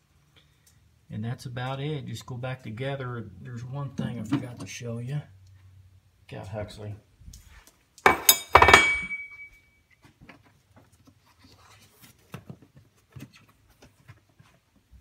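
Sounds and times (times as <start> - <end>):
metallic clank and clatter: 8.1 - 9.5
faint clicks and handling noise: 9.9 - 15.0.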